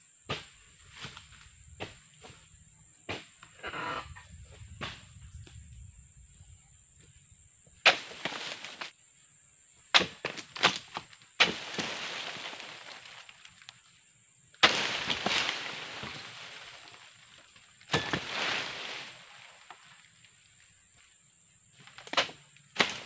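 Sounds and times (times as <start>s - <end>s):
chisel striking palm fronds: 7.8s - 8.9s, 9.9s - 12.2s, 14.6s - 16.2s, 17.9s - 19.0s, 21.9s - 23.0s
cut fronds rustling: 7.8s - 8.9s, 10.0s - 13.8s, 14.6s - 20.0s, 21.8s - 23.0s.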